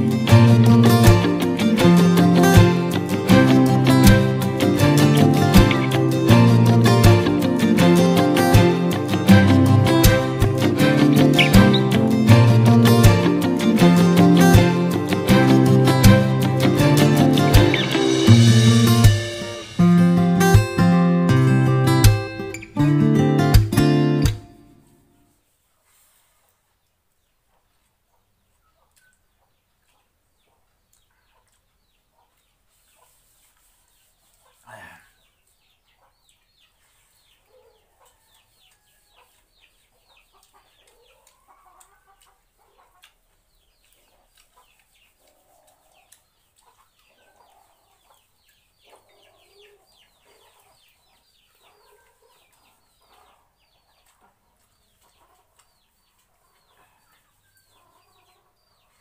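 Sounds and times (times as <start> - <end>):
chickens clucking: 0.0 - 19.8, 25.8 - 59.0.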